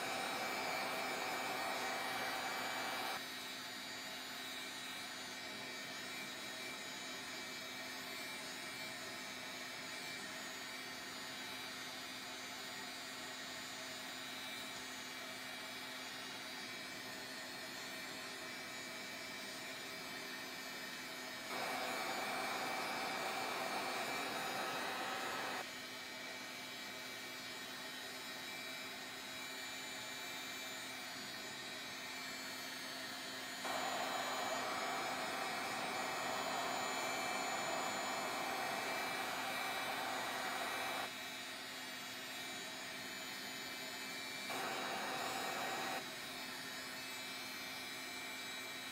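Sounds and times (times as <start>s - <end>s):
heat gun blowing: 0.0s - 3.2s, 21.5s - 25.7s, 33.6s - 41.2s, 44.4s - 46.1s.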